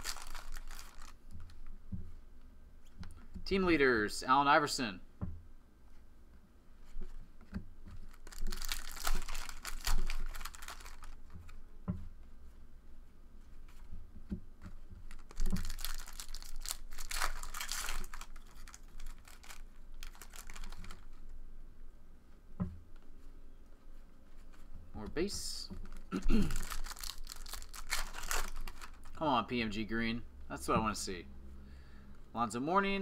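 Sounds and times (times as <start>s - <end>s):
trading cards rustling: 0.0s - 1.6s, 8.0s - 11.3s, 15.0s - 21.2s, 25.4s - 29.2s.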